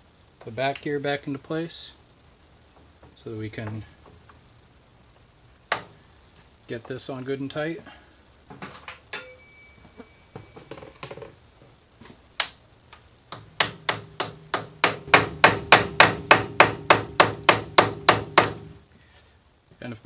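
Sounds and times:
mallet striking metal: 9.1 - 10.5.

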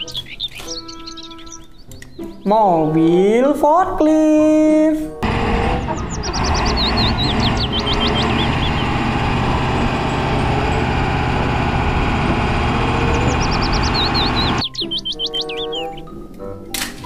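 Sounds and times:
forklift engine running: 5.2 - 14.6.

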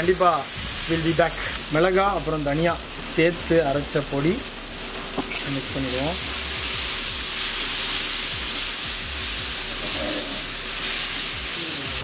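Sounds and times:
masala sizzling in oil: 0.0 - 12.0
metal spatula scraping pan: 9.7 - 10.5.

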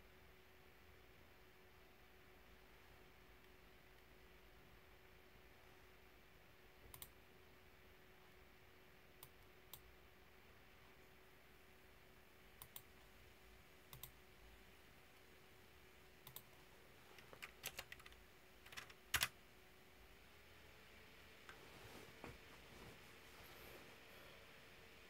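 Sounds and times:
faint steady hum: 0.0 - 25.0
computer mouse clicks: 6.8 - 7.2, 9.2 - 9.9, 12.6 - 13.0, 13.9 - 14.2, 16.2 - 16.6, 17.2 - 19.4
mechanical keyboard clicks: 17.2 - 19.4.

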